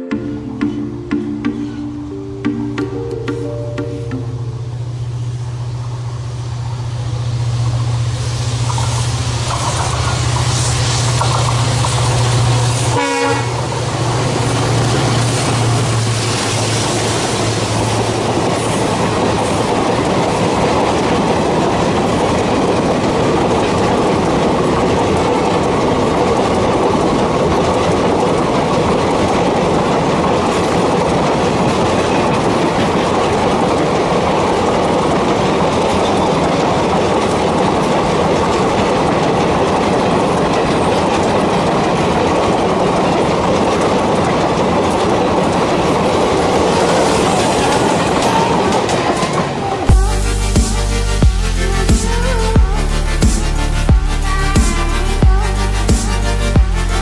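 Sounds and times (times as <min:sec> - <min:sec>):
diesel locomotive engine drone: 0:00.0 - 0:57.0
train wheels clickety-clack: 0:07.6 - 0:50.1.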